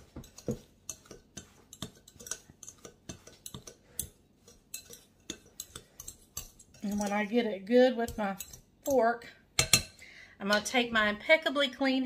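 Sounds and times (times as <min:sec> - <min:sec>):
fork scraping glass bowl: 0:00.0 - 0:07.4, 0:08.0 - 0:08.7.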